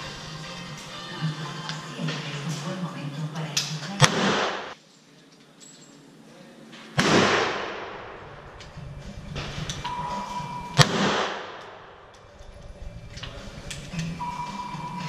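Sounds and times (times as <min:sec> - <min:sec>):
loud pistol shots with echo: 0:04.0 - 0:04.8, 0:07.0 - 0:08.3, 0:10.8 - 0:12.0
quieter pistol shots: 0:04.0 - 0:04.8, 0:07.0 - 0:08.3, 0:10.8 - 0:12.1.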